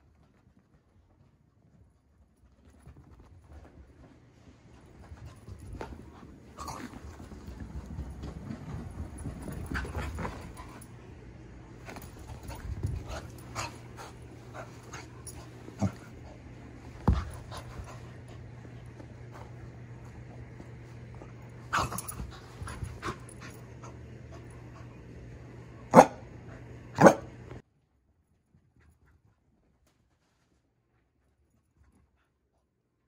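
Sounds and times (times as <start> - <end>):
thuds and scuffles on carpet: 11.8 - 21.2.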